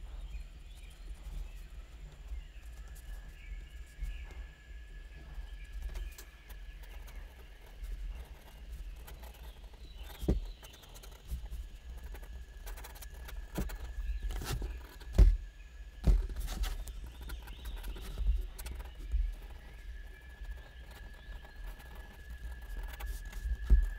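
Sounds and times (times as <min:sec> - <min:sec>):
pen drawing on paper: 0:06.8 - 0:15.1, 0:20.4 - 0:23.9.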